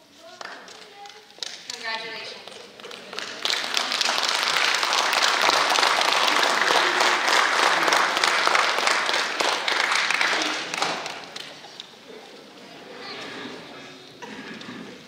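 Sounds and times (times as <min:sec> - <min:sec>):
audience applause: 0:02.4 - 0:11.8.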